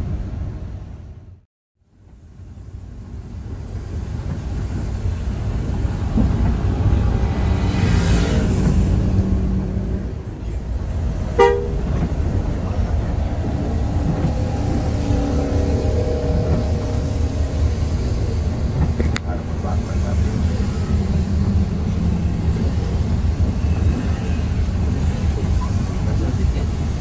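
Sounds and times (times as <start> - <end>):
bus engine and road rumble: 0.0 - 27.0
vehicle horn toot: 11.4 - 12.0.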